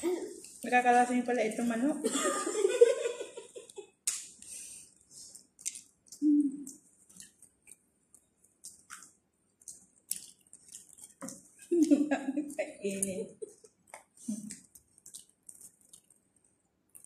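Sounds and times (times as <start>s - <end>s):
person humming: 6.2s - 6.7s.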